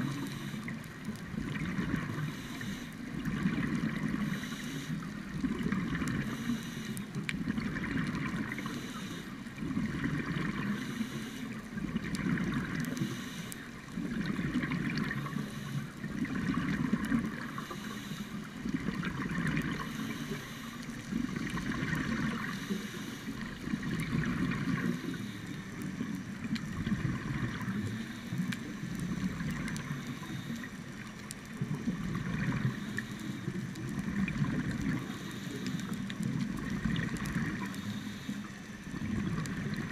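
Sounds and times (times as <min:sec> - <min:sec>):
gurgling bubble surges: 0:00.0 - 0:02.2, 0:03.1 - 0:04.3, 0:05.3 - 0:06.3, 0:07.3 - 0:08.6, 0:09.5 - 0:10.8, 0:11.7 - 0:13.0, 0:13.9 - 0:15.4, 0:16.0 - 0:17.5, 0:18.6 - 0:19.9, 0:21.1 - 0:22.5, 0:23.4 - 0:25.1, 0:25.8 - 0:30.0, 0:31.5 - 0:32.8, 0:33.7 - 0:35.1, 0:35.7 - 0:37.8, 0:38.8 - 0:39.9
scuba regulator breathing underwater: 0:02.1 - 0:03.0, 0:04.1 - 0:05.1, 0:06.2 - 0:07.1, 0:08.5 - 0:09.4, 0:12.9 - 0:13.7, 0:17.4 - 0:18.5, 0:19.6 - 0:20.9, 0:22.1 - 0:23.5, 0:34.9 - 0:36.0, 0:37.5 - 0:38.6.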